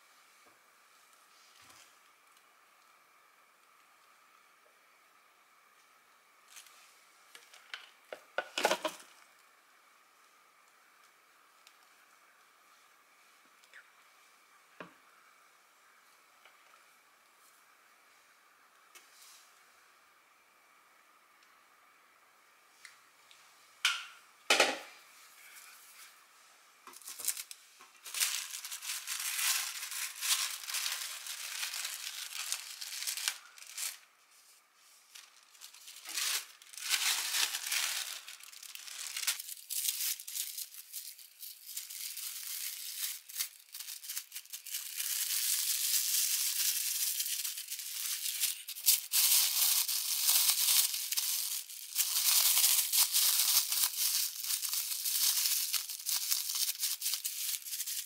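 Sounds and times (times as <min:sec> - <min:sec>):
plastic cling wrap crinkling: 0:07.4 - 0:09.3, 0:26.9 - 0:34.2, 0:35.0 - 0:58.0.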